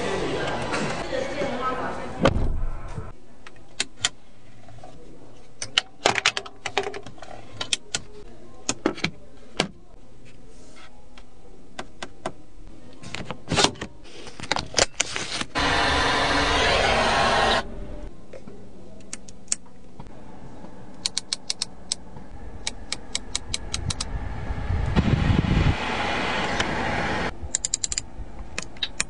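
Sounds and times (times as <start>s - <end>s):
steady rushing noise: 23.2s - 27.4s.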